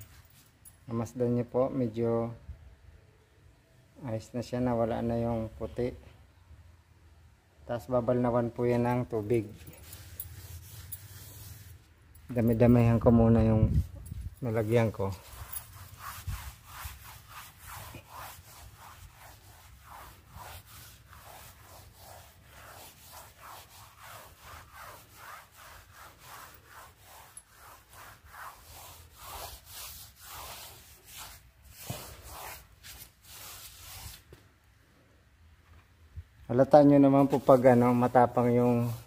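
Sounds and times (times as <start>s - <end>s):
brush scrubbing wet tiles: 9.2s - 13.4s, 14.5s - 34.3s, 37.1s - 39.0s.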